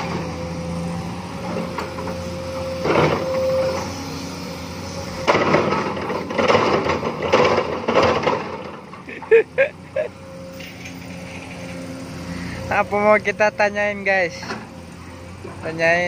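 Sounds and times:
excavator diesel engine humming: 0.0s - 16.0s.

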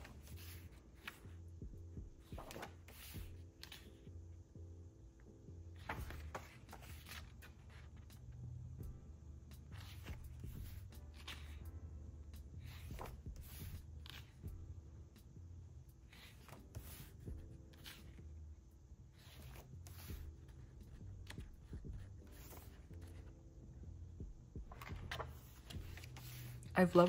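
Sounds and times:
paper pages rustling: 0.0s - 1.3s, 2.2s - 4.0s, 5.8s - 8.3s, 9.7s - 11.6s, 12.6s - 14.4s, 16.1s - 18.2s, 19.2s - 23.3s, 24.7s - 27.0s
faint lofi music: 0.0s - 27.0s.

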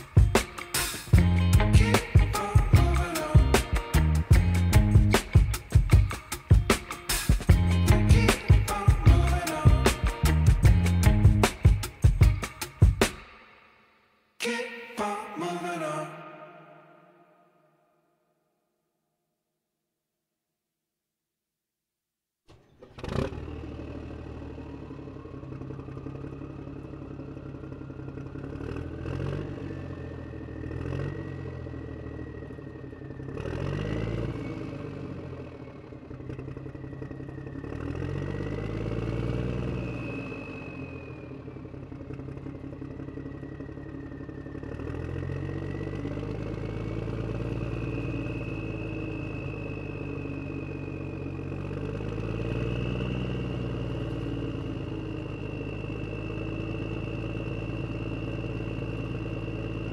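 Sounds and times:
engine revving: 0.0s - 13.4s, 22.5s - 59.9s
high whine gliding: 36.3s - 59.9s.

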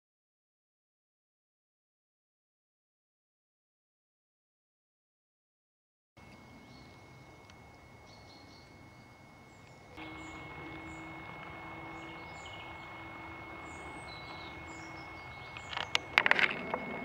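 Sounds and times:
small birds chirping: 6.2s - 17.0s
steady low hum: 6.2s - 17.0s.

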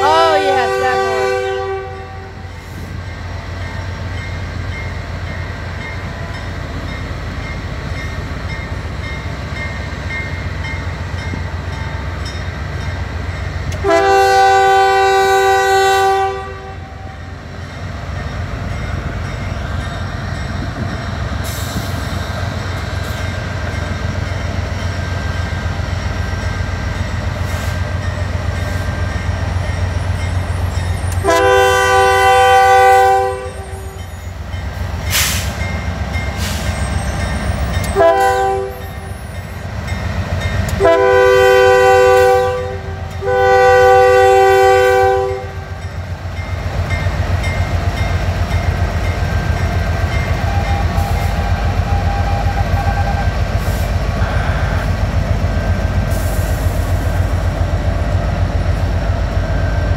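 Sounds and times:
locomotive horn blasts: 0.0s - 2.5s, 13.8s - 17.2s, 31.1s - 34.1s, 37.8s - 39.2s, 40.7s - 45.7s, 54.2s - 55.1s
freight train rumbling: 0.0s - 59.9s.

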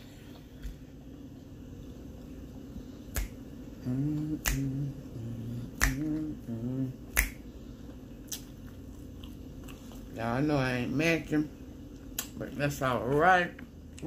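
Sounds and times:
finger snaps: 3.1s - 4.9s, 5.7s - 6.3s, 7.1s - 7.5s
person humming: 3.8s - 7.4s.

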